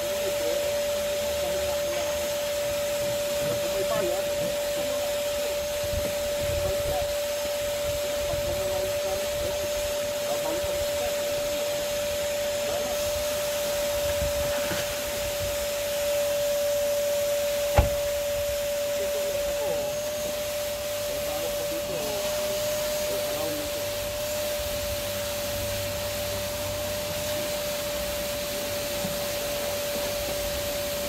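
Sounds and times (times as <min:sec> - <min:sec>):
vacuum cleaner whining: 0:00.0 - 0:31.0
sharp knock: 0:17.7 - 0:18.2.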